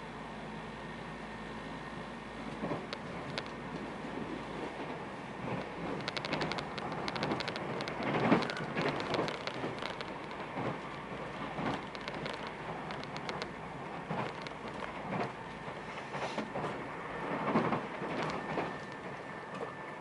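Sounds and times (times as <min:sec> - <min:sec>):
wheels clicking over track: 0:02.5 - 0:20.0
train rolling hiss: 0:15.0 - 0:20.0.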